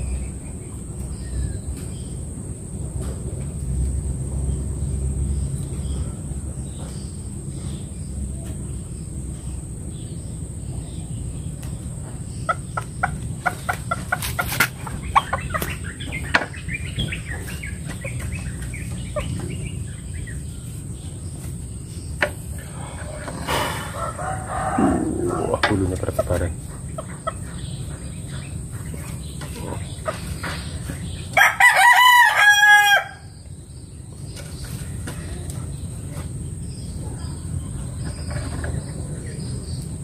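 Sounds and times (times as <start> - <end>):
chicken clucking: 12.1 - 20.4, 22.6 - 31.3
steady low rumble: 24.0 - 30.1.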